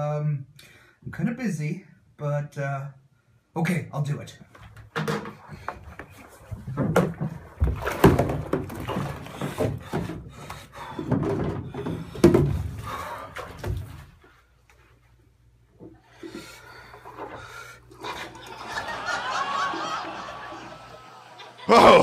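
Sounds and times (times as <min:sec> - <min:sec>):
bath water splashing: 0:05.5 - 0:14.3
knocks against tub: 0:06.6 - 0:10.2, 0:11.0 - 0:12.9.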